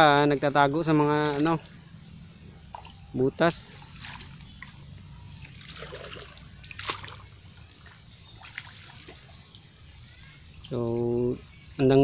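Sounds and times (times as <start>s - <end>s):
shallow water splashing: 0.9s - 10.7s
sharp splash: 3.7s - 4.4s, 5.4s - 9.4s.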